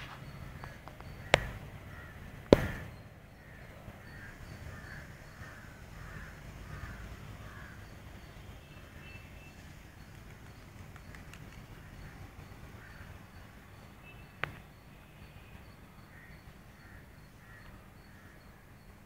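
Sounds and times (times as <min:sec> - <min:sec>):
crow cawing: 0:00.4 - 0:09.0, 0:11.8 - 0:13.4, 0:16.0 - 0:18.6
sharp knocks: 0:00.8 - 0:01.7, 0:02.4 - 0:03.0.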